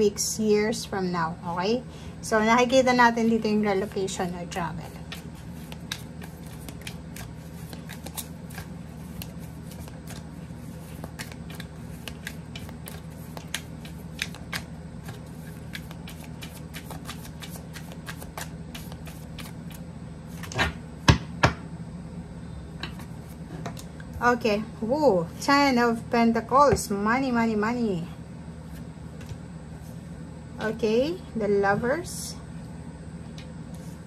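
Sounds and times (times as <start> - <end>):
cards being shuffled: 4.8 - 20.5.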